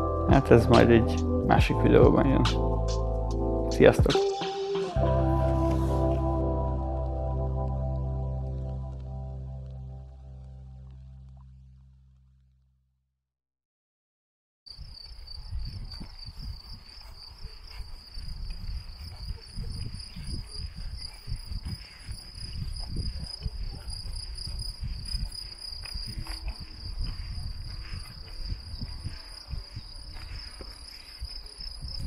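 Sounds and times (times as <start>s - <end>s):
cicadas buzzing: 14.7s - 32.0s
wind buffeting microphone: 14.8s - 32.0s.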